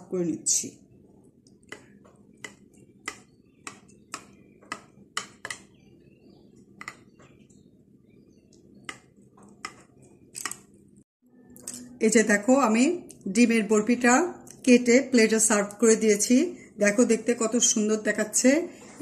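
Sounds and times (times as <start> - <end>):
knife tapping on glass dish: 1.7 - 5.7, 6.8 - 7.1, 8.9 - 9.8.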